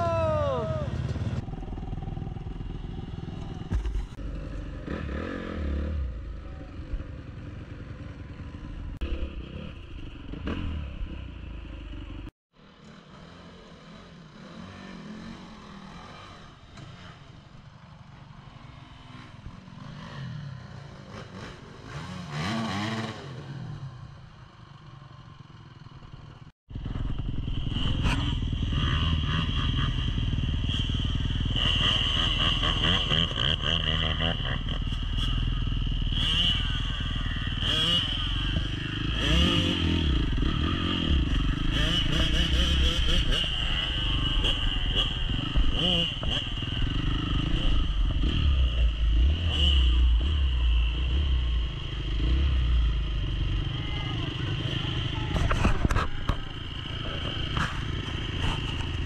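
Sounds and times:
dirt bike engines revving: 0.0 - 59.0
dirt bike passing: 0.0 - 59.0.

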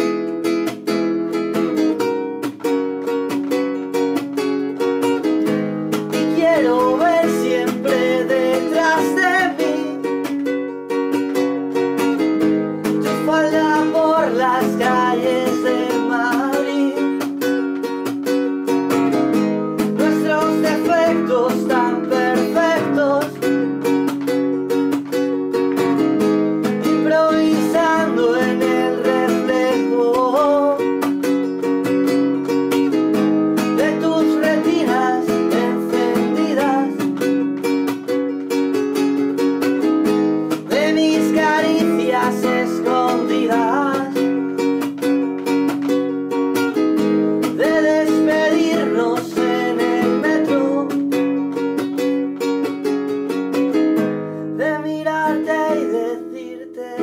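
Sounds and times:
classical guitar strumming: 0.0 - 57.0
man singing: 6.0 - 10.3, 12.8 - 17.6, 19.8 - 23.9, 26.7 - 31.1, 33.6 - 37.4, 40.5 - 44.6, 47.4 - 51.4, 54.6 - 57.0.

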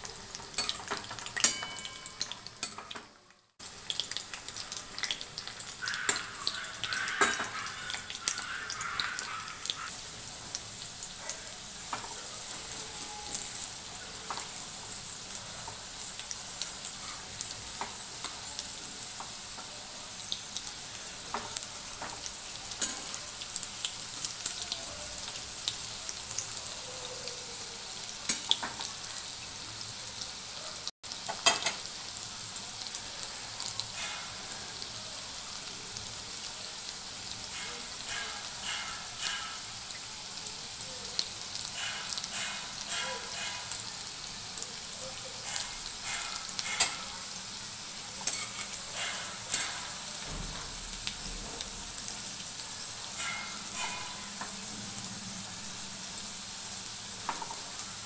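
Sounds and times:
deep-frying sizzle: 0.0 - 58.0
spatula scraping a pan: 33.9 - 34.6, 37.5 - 39.9, 41.6 - 43.9, 45.4 - 47.4, 48.2 - 50.2, 53.1 - 54.6.

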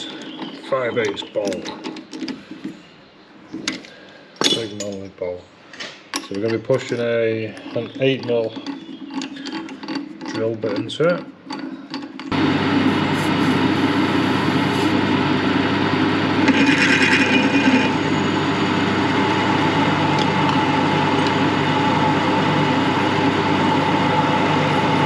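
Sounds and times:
metal lathe running: 12.3 - 25.0
aerosol spray hiss: 12.8 - 15.0.

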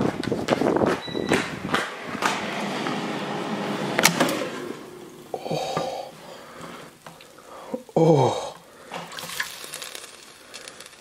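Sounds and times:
footsteps on tile floor: 0.0 - 4.8.

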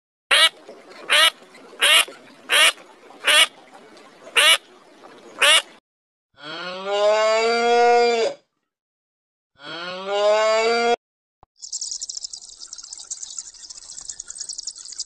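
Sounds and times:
duck quacking: 0.3 - 3.5, 4.4 - 4.6, 5.4 - 5.7
cow mooing: 6.4 - 8.4, 9.6 - 11.0.

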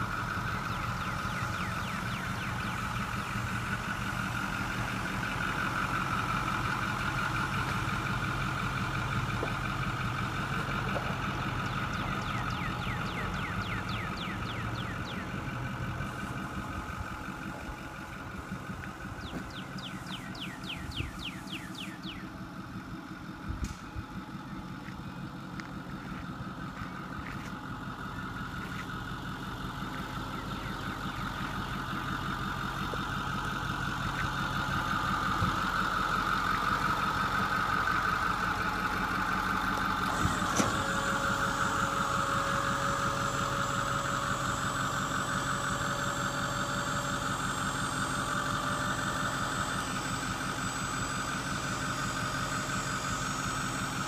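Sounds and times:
diesel engine running: 0.0 - 54.0
hydraulic whine: 40.0 - 54.0.

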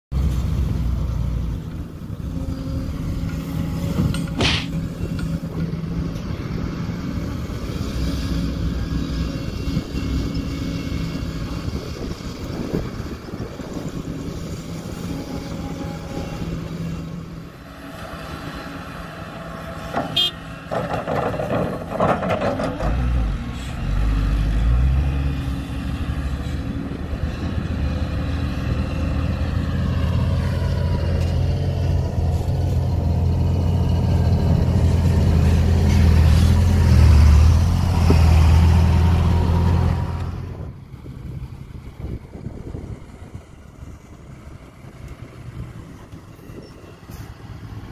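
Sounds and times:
dump truck diesel engine: 0.1 - 47.9
excavator diesel engine: 0.1 - 47.9
sharp clank: 4.2 - 4.8.

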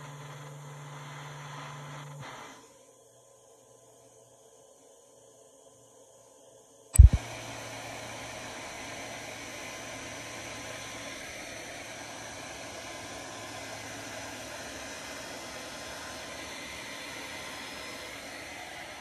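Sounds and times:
hair dryer blowing: 7.0 - 19.0.

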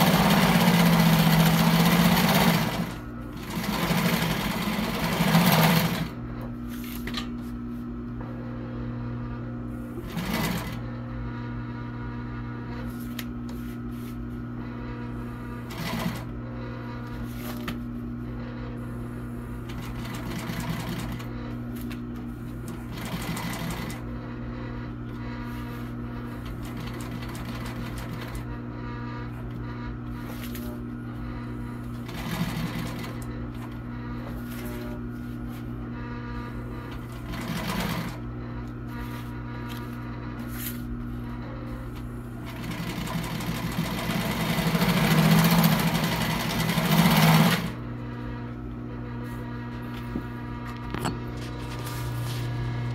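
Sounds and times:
sewing machine stitching: 0.0 - 6.2, 10.0 - 10.8, 15.6 - 16.3, 19.7 - 21.3, 22.7 - 24.0, 32.0 - 33.7, 36.9 - 38.2, 42.4 - 47.8
steady hum: 0.0 - 52.9.

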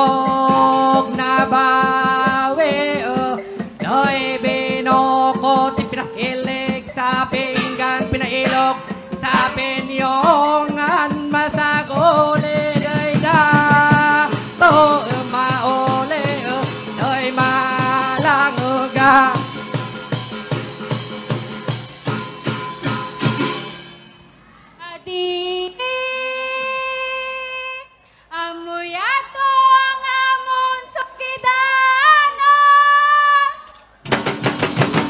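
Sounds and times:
woman singing into a microphone: 0.0 - 19.5, 24.8 - 33.7
music with pounding beat: 0.1 - 23.9, 34.1 - 35.0.

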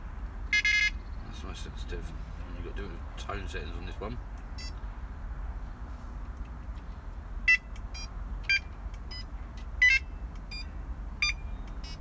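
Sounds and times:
bite alarm electronic beeps: 0.6 - 1.0.

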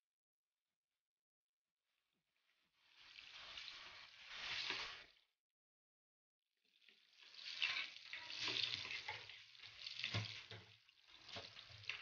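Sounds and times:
onion and garlic sizzling in oil: 2.8 - 5.2, 7.0 - 12.0
metal spoon stirring in a pan: 7.4 - 12.0.

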